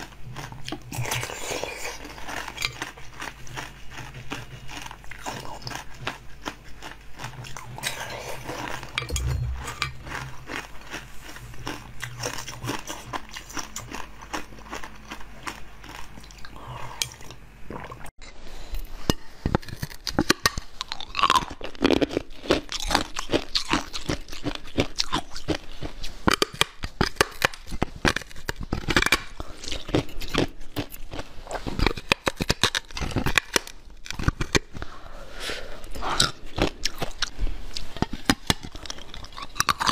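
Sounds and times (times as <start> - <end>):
mouth and chewing noises: 0.0 - 18.1, 18.8 - 35.1, 35.8 - 39.9.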